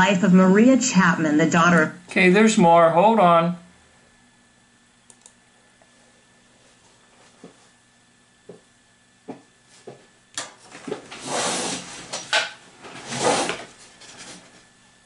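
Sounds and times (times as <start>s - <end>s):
soft clicks: 5.0s - 5.4s.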